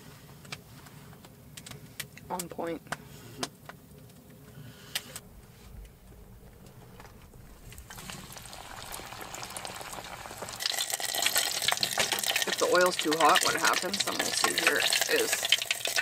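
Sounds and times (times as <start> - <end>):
dough sizzling in hot oil: 6.9 - 16.0.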